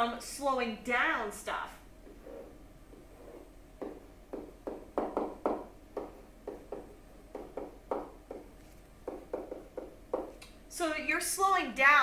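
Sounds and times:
stylus scratching on tablet: 2.1 - 3.5.

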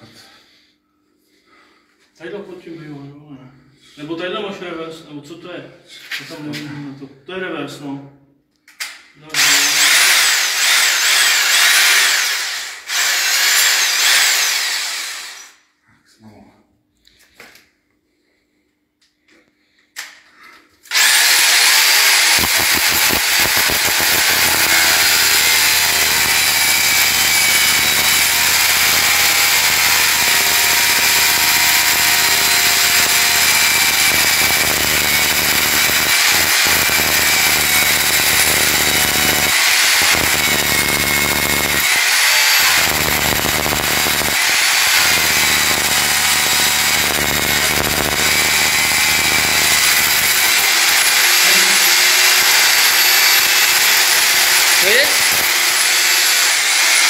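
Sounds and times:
hammer drill boring into masonry: 9.3 - 15.6, 20.9 - 57.0.

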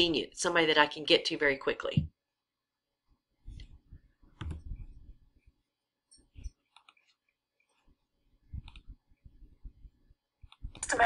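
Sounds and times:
computer mouse clicks: 3.5 - 4.9, 6.1 - 7.9, 8.6 - 9.0, 10.4 - 10.9.

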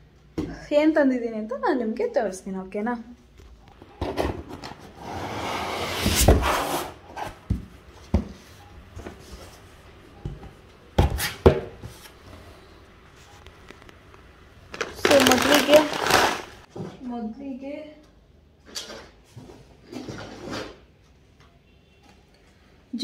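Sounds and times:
cardboard flaps rustling: 14.7 - 16.7
packages knocking and rustling: 14.7 - 16.7.

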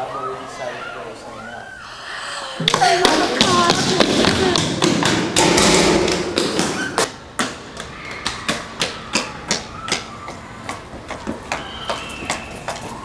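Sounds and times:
footsteps on pavement: 2.6 - 5.4, 6.1 - 13.0.

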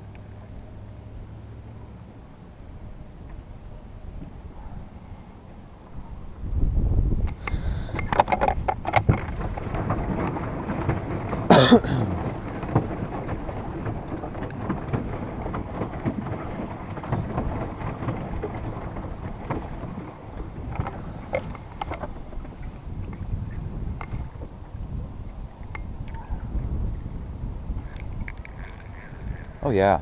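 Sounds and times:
wind on microphone: 5.9 - 30.0
water washing against plastic hull: 7.2 - 30.0.

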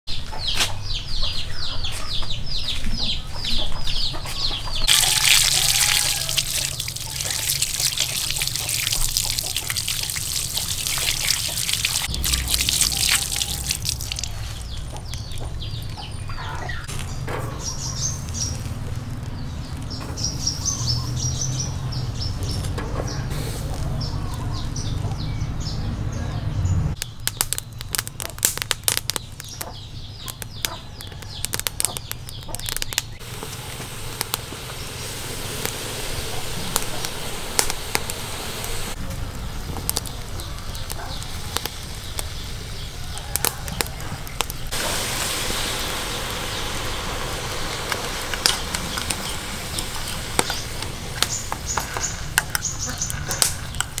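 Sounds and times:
birds chirping: 0.0 - 54.0
wood fire crackling: 4.8 - 16.2, 17.7 - 20.8, 27.0 - 54.0
water splashing and pouring: 4.9 - 15.6, 44.4 - 52.6.

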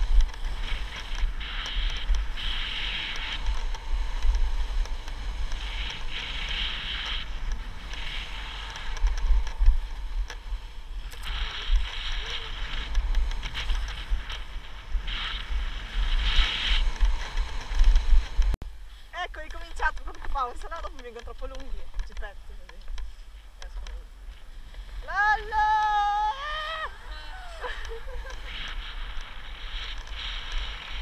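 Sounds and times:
skis scraping over snow: 0.0 - 18.6, 19.2 - 31.0
wind rumbling on microphone: 0.0 - 31.0.

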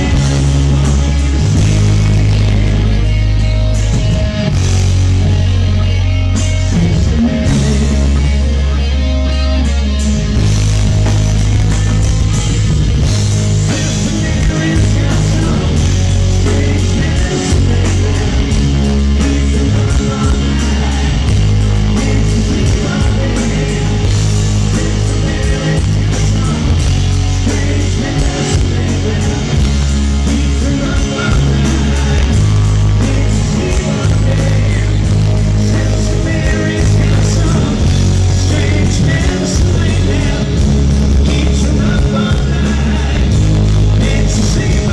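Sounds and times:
live rock band playing: 0.0 - 44.9.

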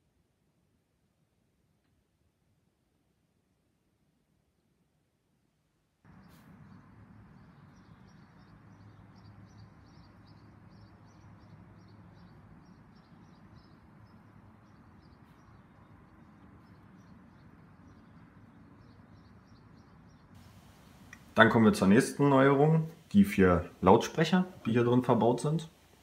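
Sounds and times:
low outdoor rumble: 6.1 - 26.0
small birds chirping: 6.1 - 26.0.

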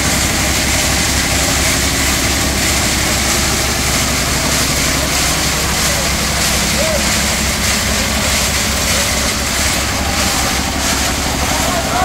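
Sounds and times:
concrete mixer engine chugging: 0.0 - 12.0.

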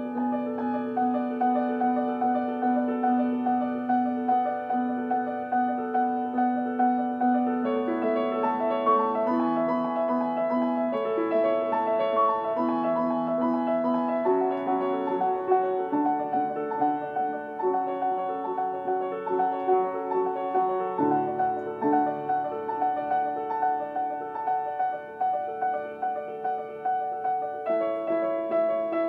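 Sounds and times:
calm piano melody: 0.0 - 29.0.

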